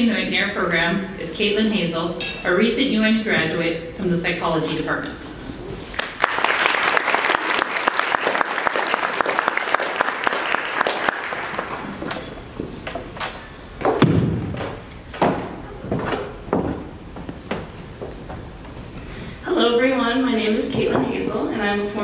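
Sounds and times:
audience applauding: 5.8s - 12.2s
thumps on wooden lectern: 13.8s - 18.4s.

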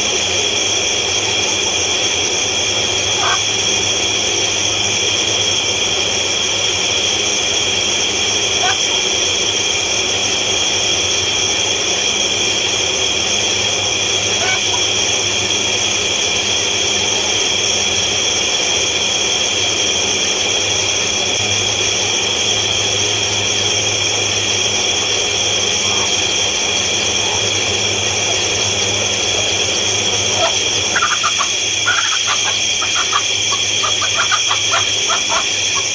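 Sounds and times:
chicks peeping: 3.2s - 3.5s, 30.2s - 35.9s
hen clucking: 3.2s - 3.5s, 8.6s - 9.0s, 14.3s - 14.9s, 30.1s - 35.9s.

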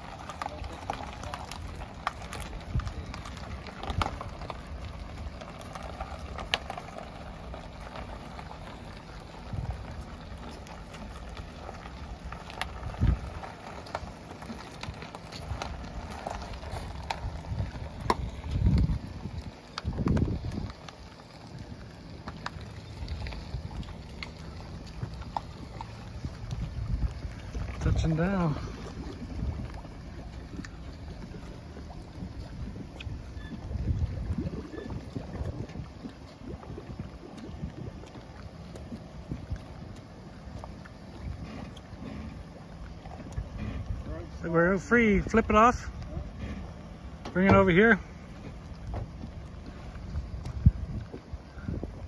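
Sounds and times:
footsteps on gravel: 0.0s - 32.4s
low rumble: 0.0s - 52.0s
vehicle engine running low: 0.0s - 52.0s
wind on microphone: 12.7s - 13.8s, 14.8s - 20.9s, 24.6s - 39.8s, 48.9s - 52.0s.

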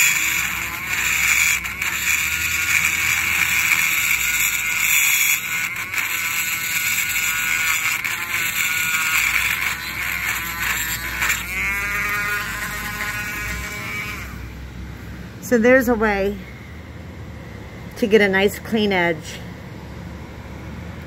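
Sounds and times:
rotary tool routing into wood: 0.0s - 14.5s.

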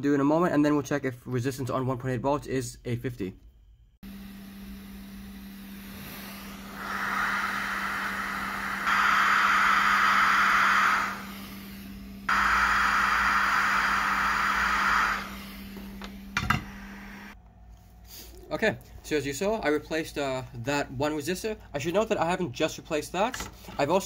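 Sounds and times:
steady low hum: 2.7s - 22.5s
hot air blower hissing: 4.0s - 17.4s.

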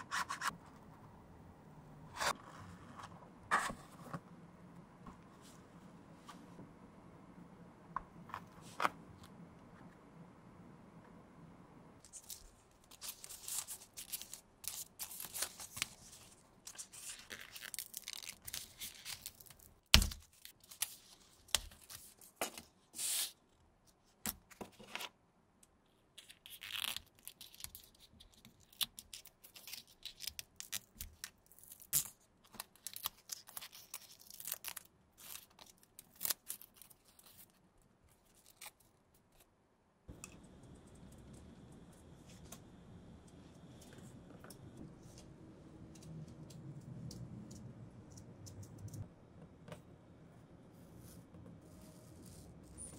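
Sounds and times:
paper crinkling and rustling: 12.1s - 23.2s, 26.2s - 39.5s.

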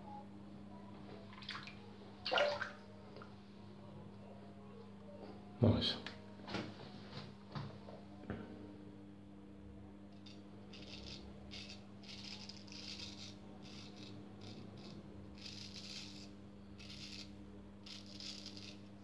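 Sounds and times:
faint steady hum: 0.0s - 19.0s
razor scraping stubble: 10.1s - 19.0s.

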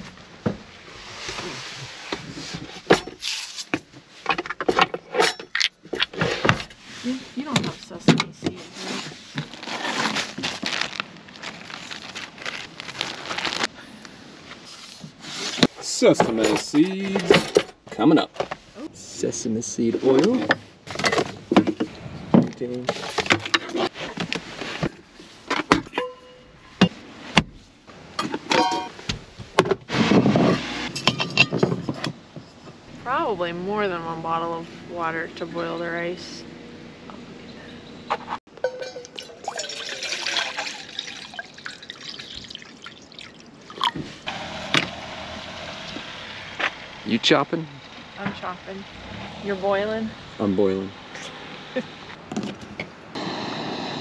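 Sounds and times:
scraping rustle: 0.8s - 5.2s, 8.5s - 13.7s, 14.4s - 15.8s
jars clinking and knocking: 38.5s - 44.0s
short ringing clink: 38.6s - 39.8s.

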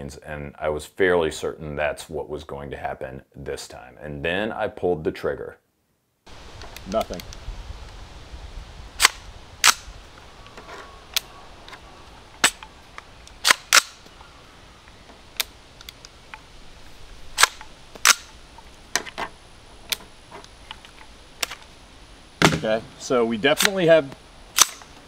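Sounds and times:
rifle dry-clicking: 12.4s - 14.1s, 24.5s - 25.0s.

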